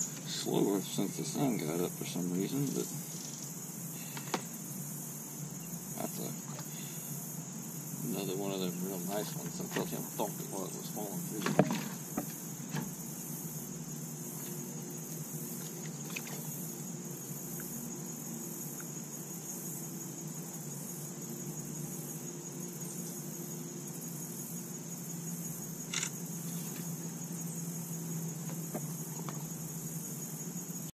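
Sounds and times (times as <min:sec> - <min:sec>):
low even hum: 0:00.0 - 0:30.9
insects buzzing: 0:00.0 - 0:31.0.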